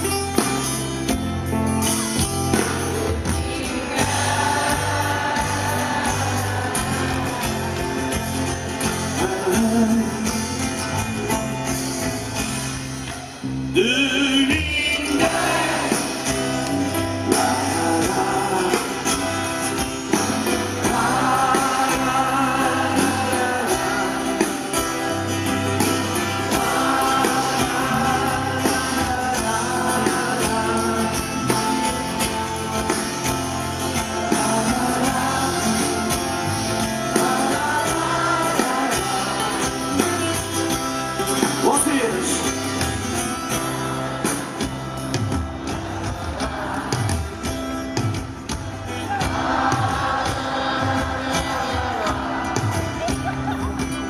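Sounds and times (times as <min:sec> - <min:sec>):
acoustic guitars strumming: 0:00.0 - 0:54.0
drums: 0:00.0 - 0:54.0
person singing: 0:02.7 - 0:10.8, 0:13.8 - 0:44.7.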